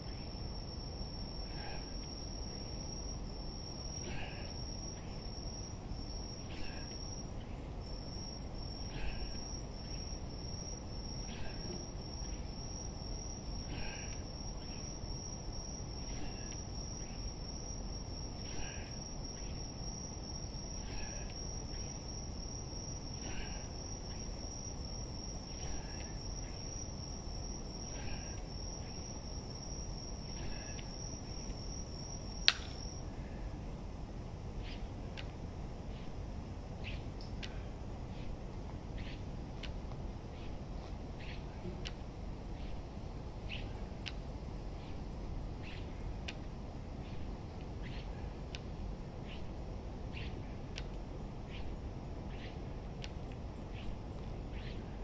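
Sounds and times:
insect trilling: 0.0 - 33.0, 39.0 - 39.3, 40.3 - 41.4, 43.5 - 43.8, 45.6 - 45.9, 47.0 - 48.2, 49.2 - 50.5, 51.5 - 52.7, 53.7 - 55.0
sharp click: 32.4 - 32.8.

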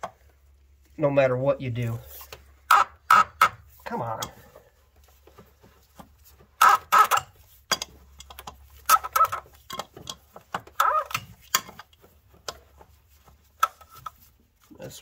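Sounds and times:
wrench squeaky creaks: 2.7 - 3.6, 6.6 - 7.4, 8.2 - 11.8
wrench clicking: 6.6 - 11.9.

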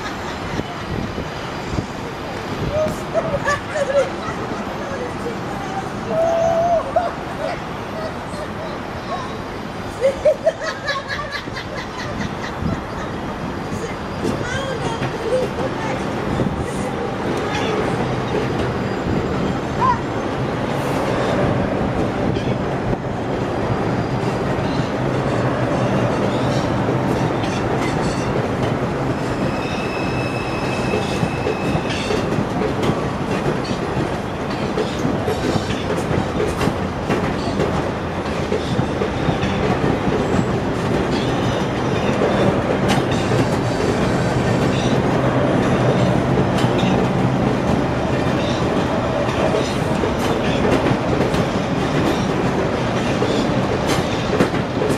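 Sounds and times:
subway train rumbling past: 0.0 - 54.9
wheels clacking over rails: 11.0 - 54.9
high wheel squeal: 23.6 - 26.8, 29.2 - 32.3.

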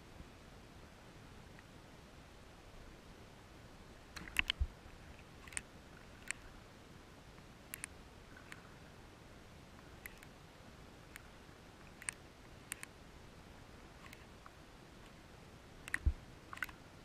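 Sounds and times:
faint steady hiss: 0.0 - 17.0
water ripples slapping camera: 4.1 - 6.6.

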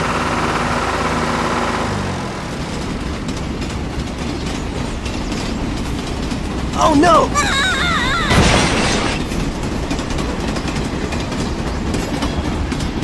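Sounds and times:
toy train clickety-clack: 2.6 - 6.8, 9.4 - 13.0.

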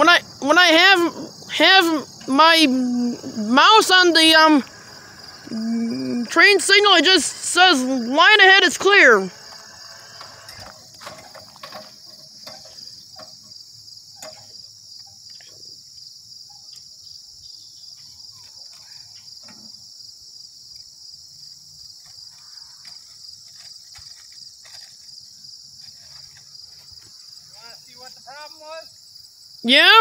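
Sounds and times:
insects trilling: 0.0 - 30.0.

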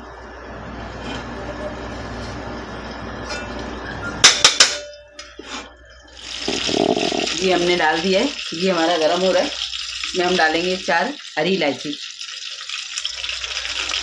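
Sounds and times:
ghee sizzling in a pot: 6.2 - 14.0.

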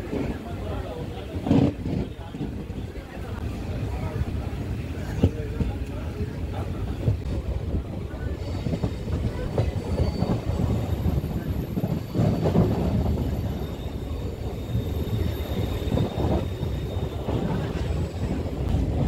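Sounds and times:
train wheels rumbling on rails: 0.0 - 19.0
high wheel squeal: 9.6 - 18.5.

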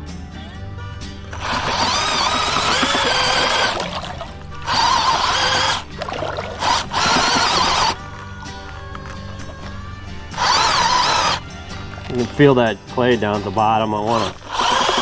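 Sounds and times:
background music: 0.0 - 15.0
drill mixing clay slurry: 1.3 - 8.0, 9.6 - 12.8, 13.8 - 15.0.

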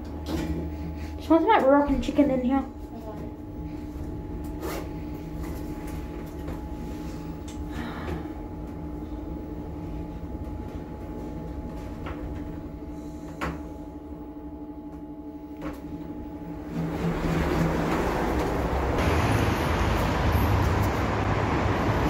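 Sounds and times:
lift electric hum: 0.0 - 22.0
outside noise: 16.7 - 22.0.

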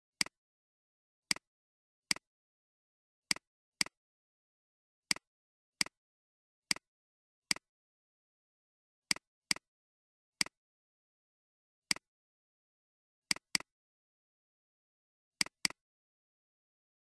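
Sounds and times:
computer mouse clicks: 5.1 - 6.0, 9.1 - 9.7, 13.3 - 13.7, 15.4 - 15.8.

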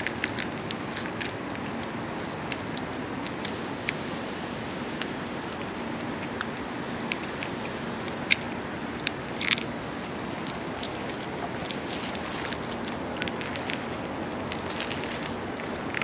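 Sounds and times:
cat chewing food: 0.0 - 16.0
steady background hiss: 0.0 - 16.0.

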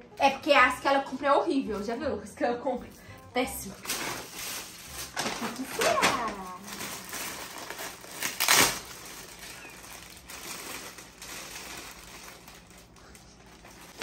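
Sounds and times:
wrapping paper tearing and crinkling: 3.6 - 14.0.

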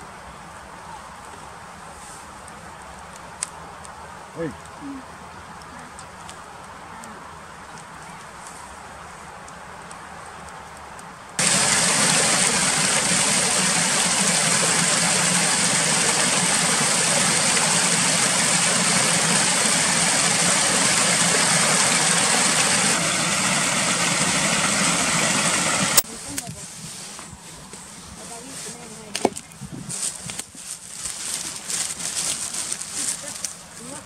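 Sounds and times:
stream water rushing under ice: 11.4 - 26.0.

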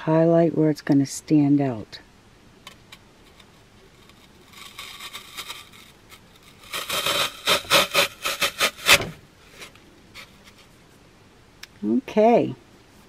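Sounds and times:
twig scraping in floral foam: 3.2 - 10.8.

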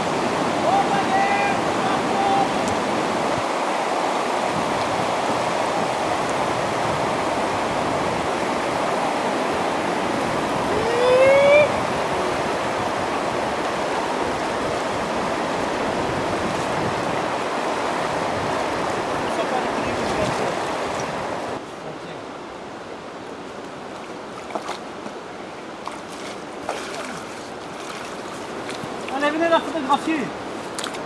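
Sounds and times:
river rapids rushing: 0.0 - 31.0
rising whoop: 10.7 - 11.8.

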